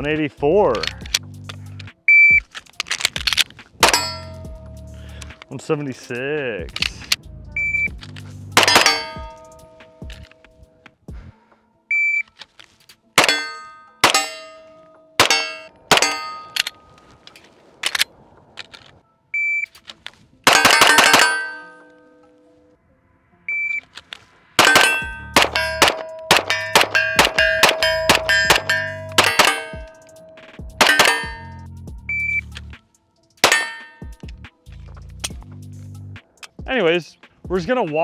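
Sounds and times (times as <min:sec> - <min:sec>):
pistol shots with metallic clang: 0:03.8 - 0:04.6, 0:08.6 - 0:10.2, 0:13.2 - 0:16.9, 0:20.5 - 0:22.4, 0:24.6 - 0:31.6, 0:33.4 - 0:34.2
shot timer beeps: 0:32.1 - 0:32.5.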